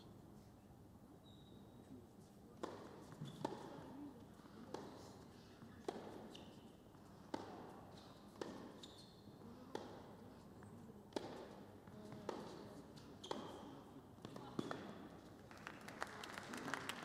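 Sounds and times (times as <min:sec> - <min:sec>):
racket hitting tennis ball: 0:02.6 - 0:03.8, 0:05.8 - 0:06.3, 0:07.3 - 0:08.8, 0:09.7 - 0:10.1, 0:11.1 - 0:13.6
ball bouncing on court: 0:07.3 - 0:07.7, 0:09.7 - 0:10.1, 0:13.2 - 0:15.0.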